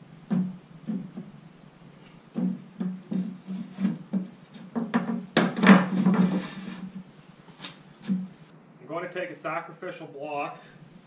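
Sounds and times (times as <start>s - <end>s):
wood scraping against wood: 2.0s - 8.5s
short wooden knocks: 2.3s - 7.0s.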